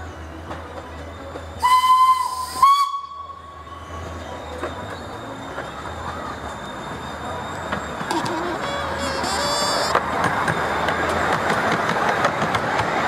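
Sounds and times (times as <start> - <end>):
steam whistle blasts: 1.6 - 3.6.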